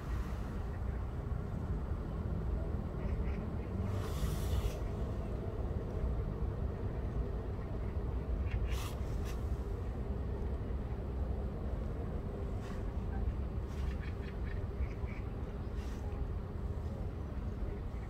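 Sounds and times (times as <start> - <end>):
low background rumble: 0.0 - 18.0
rustling hisses: 3.9 - 5.0, 8.7 - 9.6.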